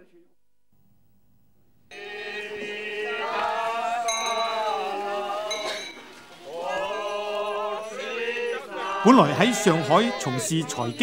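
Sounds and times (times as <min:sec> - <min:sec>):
men singing together: 0:01.9 - 0:11.0
bright metallic clinks: 0:05.5 - 0:06.1.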